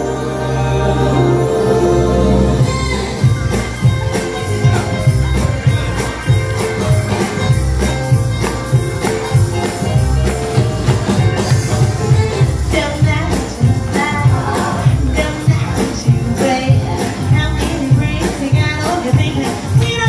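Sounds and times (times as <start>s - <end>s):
held chord: 0.0s - 12.5s
upbeat music with punchy percussion: 2.6s - 20.0s.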